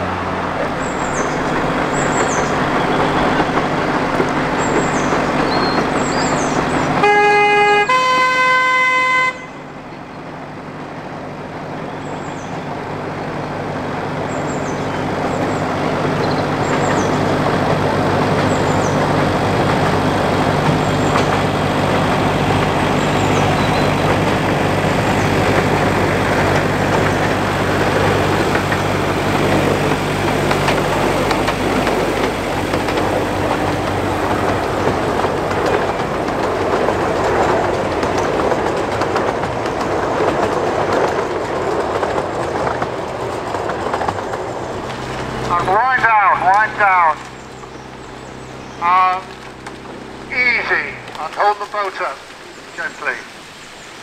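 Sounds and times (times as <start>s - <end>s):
diesel locomotive running: 0.0s - 54.0s
two-note train horn: 6.6s - 9.8s.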